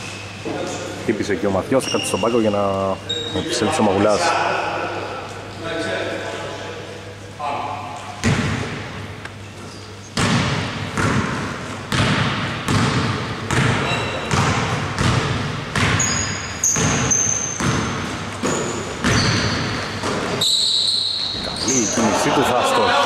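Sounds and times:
sneaker squeaks: 0.0s - 0.8s, 1.7s - 3.8s, 9.4s - 11.3s, 13.5s - 22.2s
basketball bouncing on wooden floor: 8.2s - 8.8s, 10.2s - 20.4s.

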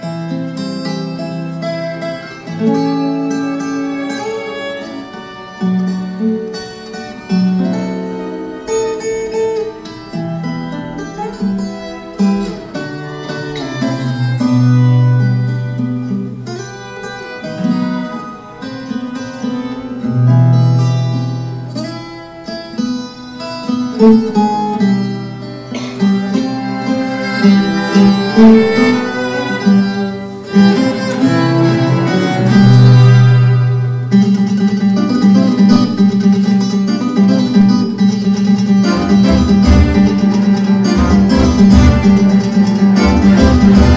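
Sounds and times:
plucked and strummed guitar: 0.0s - 43.9s
cellos playing bowed notes: 2.1s - 20.6s, 26.3s - 34.4s, 38.8s - 43.9s.

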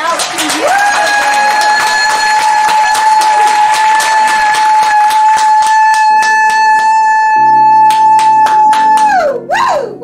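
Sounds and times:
fast hand clapping: 0.0s - 7.3s, 7.9s - 9.3s
long held high note: 6.8s - 10.0s
music with low chords: 7.4s - 10.0s.

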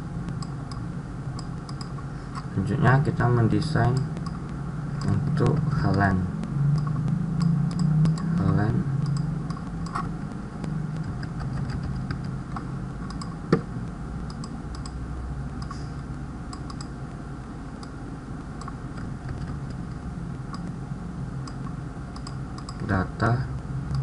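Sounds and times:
steady low hum: 0.0s - 24.0s
mouse buttons clicking: 1.4s - 2.0s, 6.8s - 13.6s, 14.3s - 15.0s, 16.5s - 17.0s
keyboard keys clicking: 6.8s - 13.6s.

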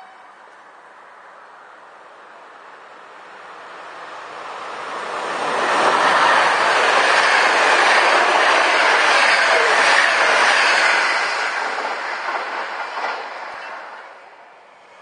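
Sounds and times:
train wheels rushing on rails: 3.5s - 15.0s.

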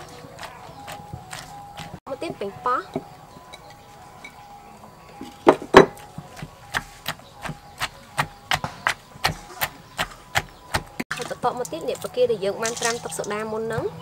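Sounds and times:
wooden pestle pounding in mortar: 0.0s - 2.0s, 5.5s - 11.3s.

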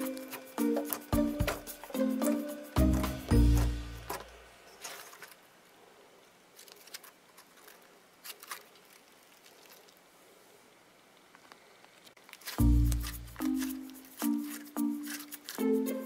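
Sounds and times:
background music: 0.0s - 4.6s, 12.6s - 16.0s.

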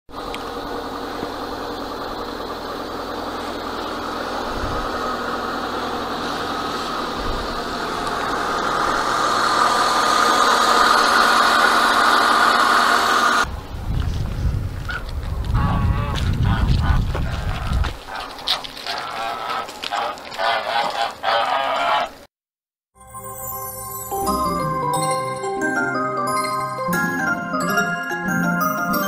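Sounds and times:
car engine idling: 0.1s - 13.8s.

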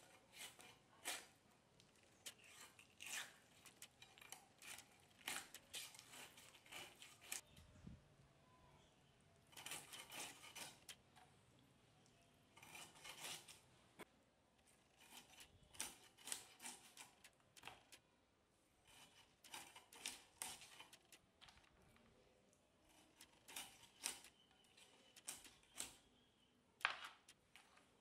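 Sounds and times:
knife scraping and cutting fish: 0.0s - 7.4s, 9.5s - 11.1s, 12.5s - 13.7s, 14.7s - 18.0s, 18.8s - 21.2s, 22.8s - 26.1s.

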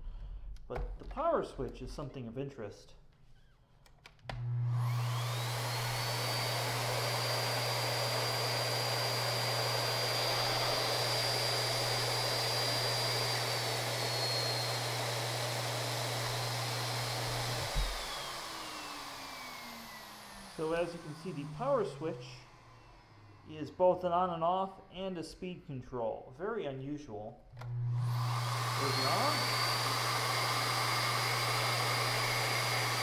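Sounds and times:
vacuum cleaner motor whine: 4.3s - 23.5s, 27.5s - 33.0s.

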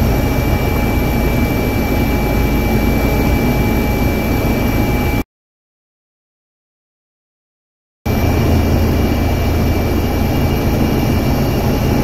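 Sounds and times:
helicopter rotor and turbine noise: 0.0s - 5.2s, 8.1s - 12.0s.

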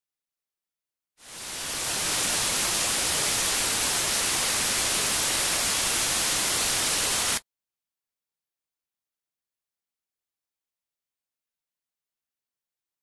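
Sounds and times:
white noise static hiss: 1.2s - 7.4s.

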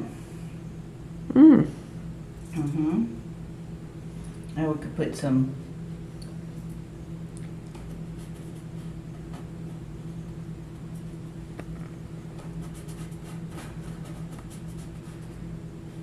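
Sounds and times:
low room hum: 0.0s - 16.0s
paintbrush scratching on canvas: 12.4s - 15.4s.

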